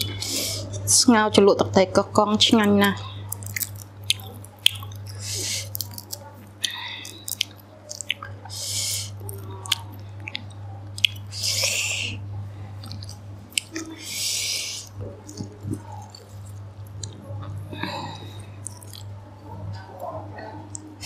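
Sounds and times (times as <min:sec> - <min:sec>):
steady low hum: 0:00.0 - 0:21.0
person chewing: 0:02.8 - 0:12.2, 0:12.8 - 0:19.2.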